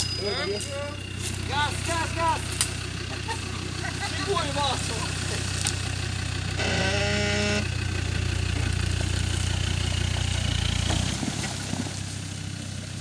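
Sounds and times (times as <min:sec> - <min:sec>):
held tone: 0:00.0 - 0:01.2, 0:06.5 - 0:07.8
diesel engine under throttle: 0:00.0 - 0:13.0.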